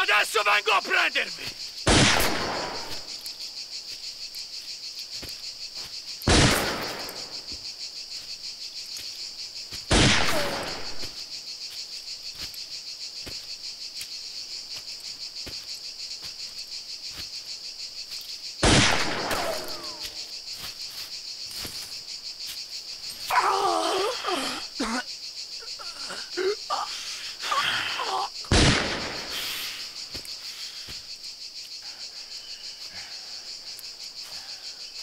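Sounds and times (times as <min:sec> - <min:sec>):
crickets chirring: 0:00.0 - 0:35.0
gunshots echoing: 0:01.9 - 0:03.0, 0:06.3 - 0:07.4, 0:09.9 - 0:11.0, 0:18.6 - 0:20.0, 0:28.5 - 0:29.4.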